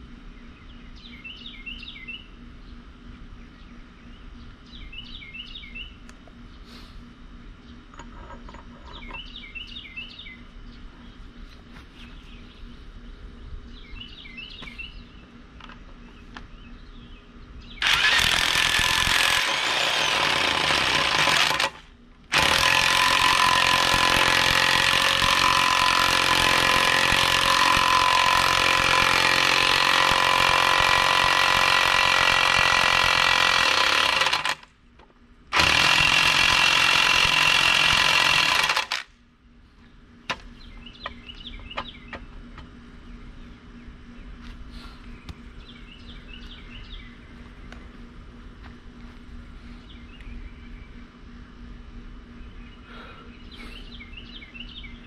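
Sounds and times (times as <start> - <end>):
bird chirping: 0.3 - 6.6, 7.6 - 17.9, 39.7 - 48.1, 49.7 - 51.2, 52.4 - 55.0
impact wrench running: 17.8 - 34.6, 35.5 - 39.1.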